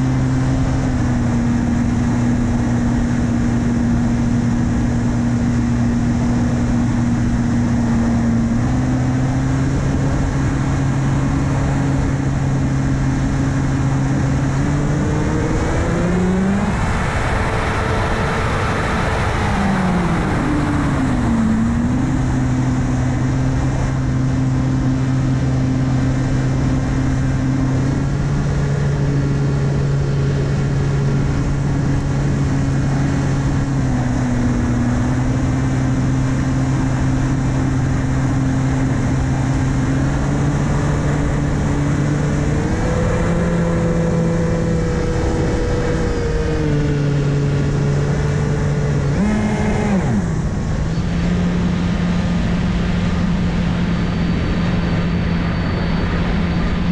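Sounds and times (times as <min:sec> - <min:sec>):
propeller motor drone: 0:00.0 - 0:56.9
wind rushing over microphone: 0:00.0 - 0:56.9.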